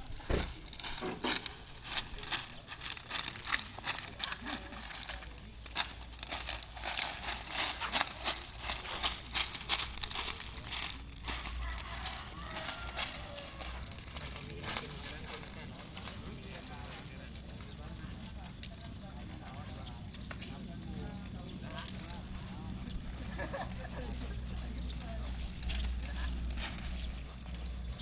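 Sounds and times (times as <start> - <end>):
seed pods popping and crackling: 0.1 - 20.7.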